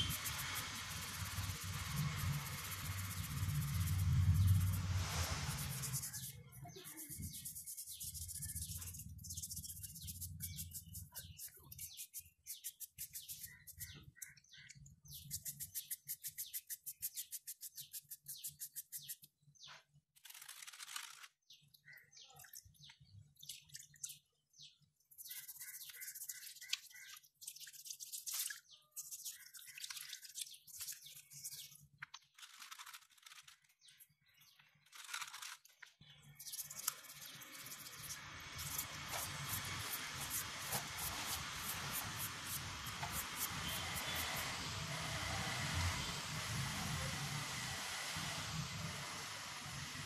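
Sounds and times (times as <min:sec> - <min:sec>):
paintbrush scrubbed in water: 0:00.0 - 0:14.2, 0:25.1 - 0:31.8, 0:36.4 - 0:45.2
stiff brush scrubbing bristles: 0:00.0 - 0:14.4, 0:15.1 - 0:19.2, 0:25.1 - 0:31.8, 0:36.4 - 0:47.6.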